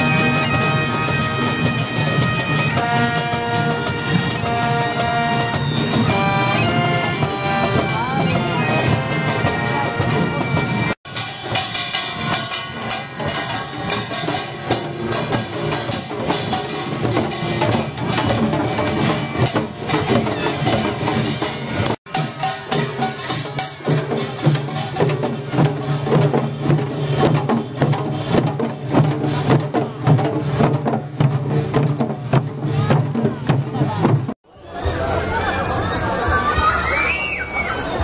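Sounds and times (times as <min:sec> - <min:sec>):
bagpipes playing: 0:00.0 - 0:11.0
brass instruments: 0:00.0 - 0:11.0.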